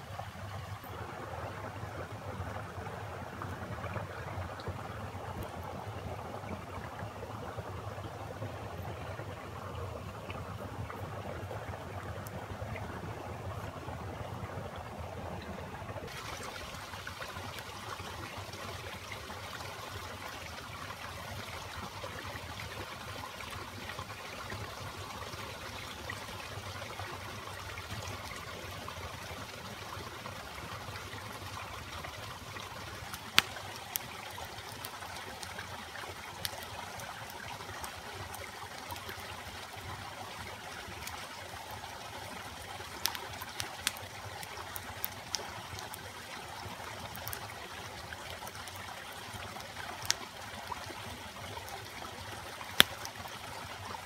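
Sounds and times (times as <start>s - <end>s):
stream running: 0.0s - 54.0s
campfire wood popping: 30.4s - 39.7s, 40.4s - 53.6s.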